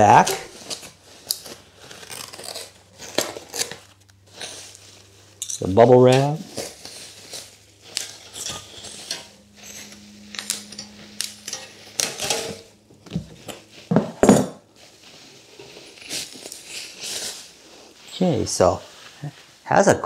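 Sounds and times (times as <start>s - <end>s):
metal wire clinking: 0.0s - 13.8s
packaging crinkling and rustling: 0.0s - 13.9s, 14.6s - 19.6s.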